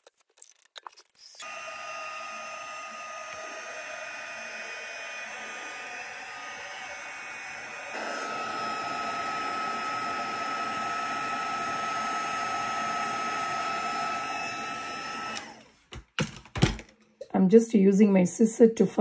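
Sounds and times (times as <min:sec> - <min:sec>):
heat tool blowing with whine: 0:01.4 - 0:15.7.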